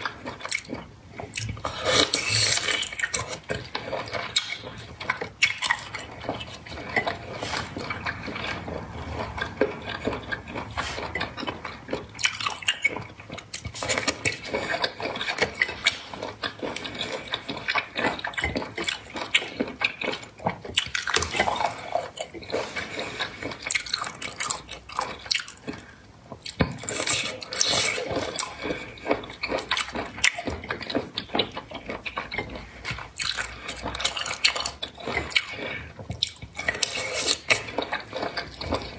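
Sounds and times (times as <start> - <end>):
wet chewing and slurping: 0.0 - 38.9
food scraping in ceramic bowl: 1.6 - 24.7.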